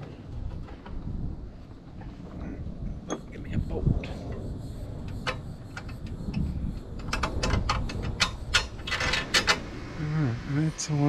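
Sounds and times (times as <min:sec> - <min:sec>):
scraping rattle: 0:04.1 - 0:10.0.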